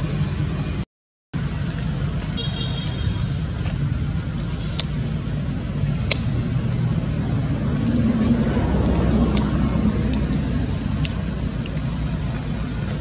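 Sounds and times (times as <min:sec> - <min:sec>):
road traffic rumble: 0:00.0 - 0:00.8, 0:01.4 - 0:13.0
vehicle passing: 0:03.1 - 0:13.0
sharp ticks: 0:03.7 - 0:06.4, 0:07.7 - 0:12.5.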